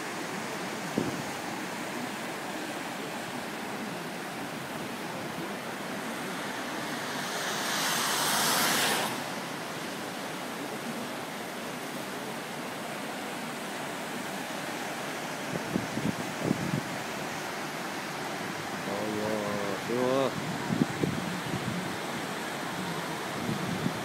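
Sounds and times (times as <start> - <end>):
floodwater rushing: 0.0 - 24.0.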